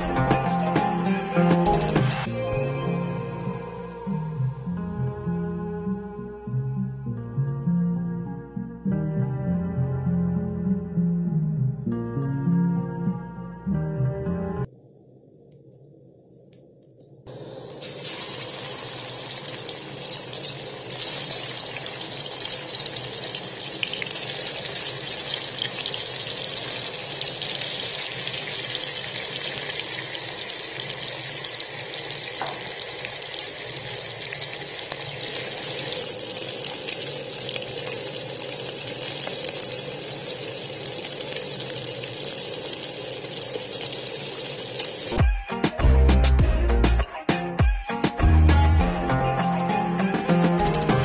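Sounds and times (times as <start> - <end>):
fish sizzling in hot oil: 17.6 - 45.2.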